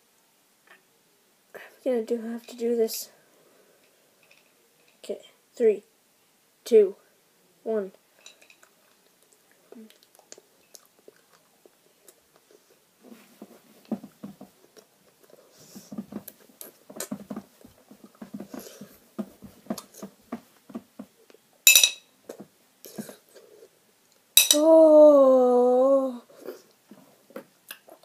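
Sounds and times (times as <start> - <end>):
plate clinking: 21.7 - 22.1, 24.4 - 24.6
boy wailing: 24.5 - 26.3.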